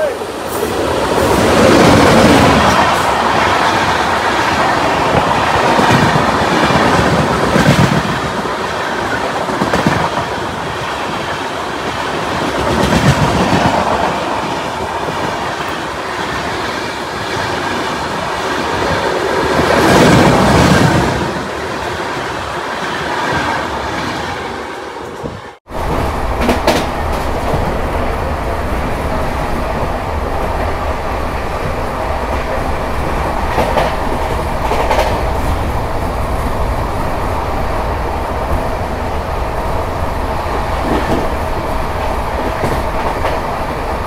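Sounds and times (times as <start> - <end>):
train passing at speed: 0.0 - 44.0
wheels clattering on rail: 25.1 - 27.9, 32.3 - 35.8, 40.4 - 44.0.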